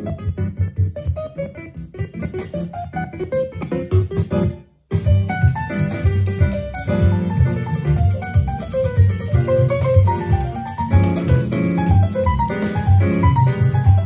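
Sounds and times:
music with heavy bass: 0.0s - 14.0s
piano-led music with drums: 0.0s - 14.0s.

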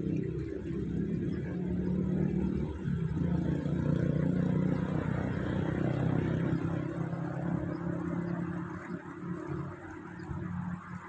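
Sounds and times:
low engine rumble: 0.0s - 11.0s.

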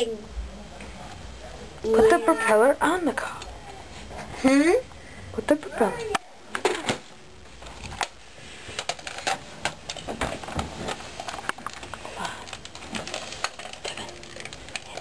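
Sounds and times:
plastic toy parts clicking: 11.2s - 15.0s.

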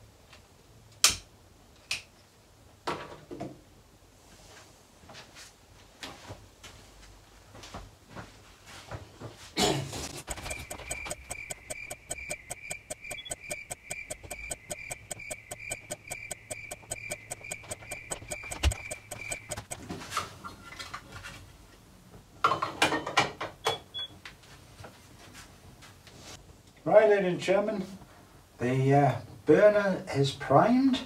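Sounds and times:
rapid clock ticks: 10.2s - 19.8s
pulsing high tone: 10.3s - 19.8s.

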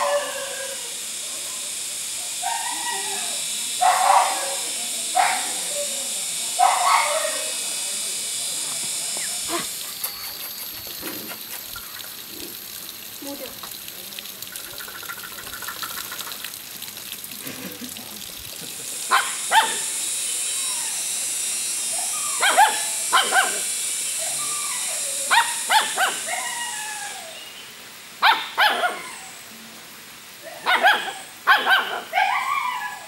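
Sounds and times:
puppies yelping and barking: 0.0s - 0.9s, 9.0s - 12.4s, 21.9s - 27.4s, 30.6s - 33.0s.

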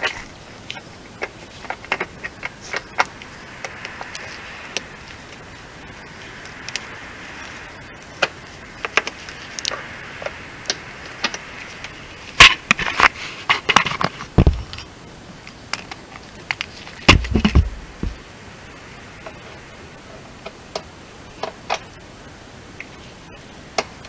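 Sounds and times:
loud bumps: 10.2s - 14.8s, 17.0s - 18.3s.

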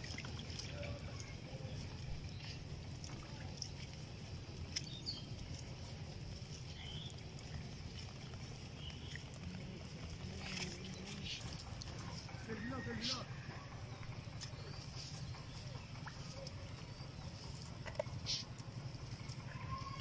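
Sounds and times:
fish splashing in water: 0.0s - 13.5s
low rumble: 0.0s - 20.0s.

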